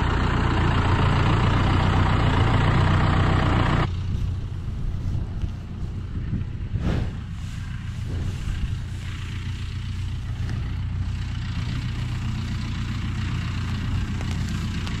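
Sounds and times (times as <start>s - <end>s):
tractor engine idling: 0.0s - 15.0s
hay rustling and tearing: 4.0s - 12.4s.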